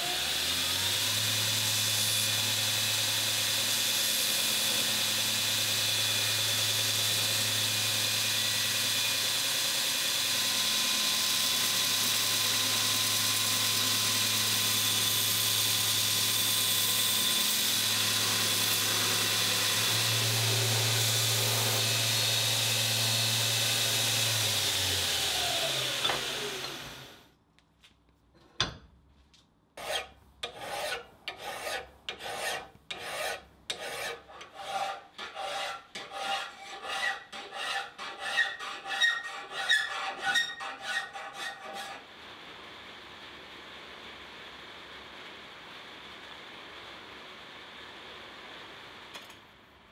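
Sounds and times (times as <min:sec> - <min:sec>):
belt grinder grinding steel: 0:11.2 - 0:27.2
hand file rasping on steel: 0:29.8 - 0:42.0.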